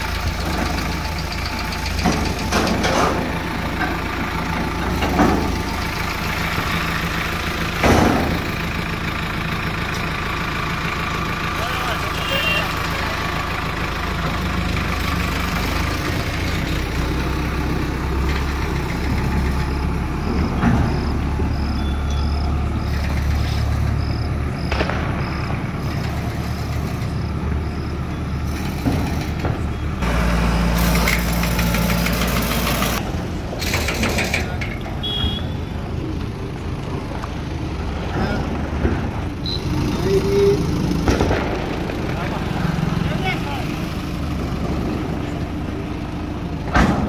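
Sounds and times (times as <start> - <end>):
heavy vehicle engine rumbling: 0.0 - 47.0
faint high-pitched beeps: 19.8 - 22.4.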